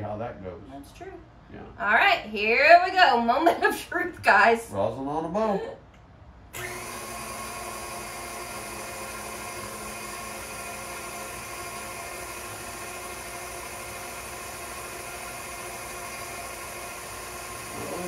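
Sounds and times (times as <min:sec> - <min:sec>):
stand mixer motor whine: 0:06.6 - 0:18.0.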